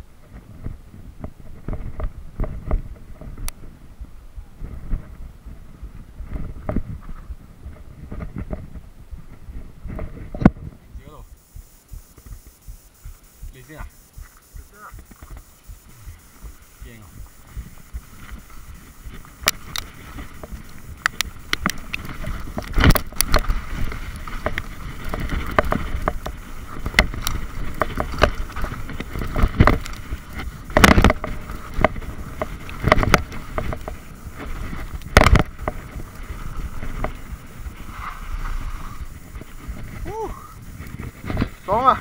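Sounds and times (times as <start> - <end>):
bike rumbling and rattling: 0.0 - 11.5, 13.9 - 42.0
wind on microphone: 0.0 - 42.0
bike knocking over bumps: 19.1 - 37.4.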